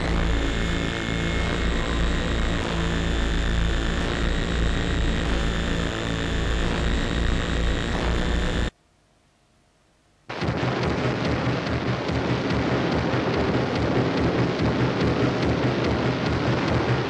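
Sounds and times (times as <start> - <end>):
droning music: 0.0 - 8.7, 10.3 - 17.0
loud dense rushing noise: 10.3 - 17.0.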